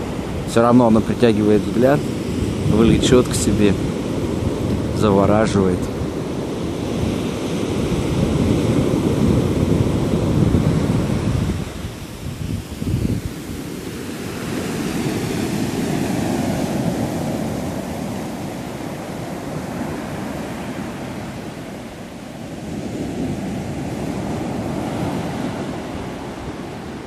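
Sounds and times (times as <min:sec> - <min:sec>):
waves washing on pebbly shore: 0:00.0 - 0:27.0.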